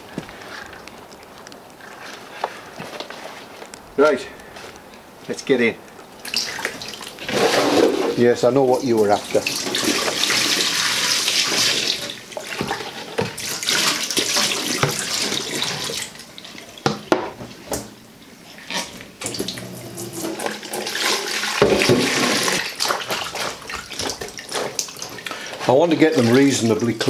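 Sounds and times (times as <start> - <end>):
water splashing in bowl: 6.2 - 16.8, 18.6 - 27.0
water splashing into sink: 6.2 - 17.9, 19.2 - 27.0.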